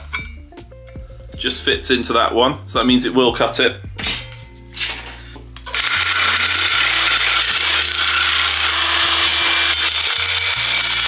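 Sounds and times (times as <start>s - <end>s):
nibbler cutting sheet metal: 5.6s - 11.0s.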